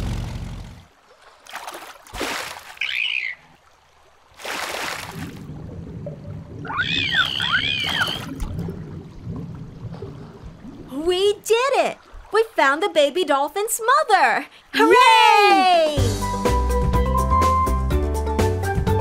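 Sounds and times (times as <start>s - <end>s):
cartoon water splashes: 1.5s - 3.5s, 4.4s - 5.5s, 6.5s - 8.8s
chirping dolphin whistles: 6.7s - 8.3s.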